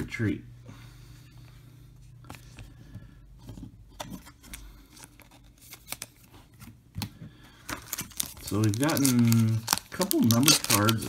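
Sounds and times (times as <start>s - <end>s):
trading cards clicking and rustling: 4.0s - 6.3s, 7.0s - 11.0s.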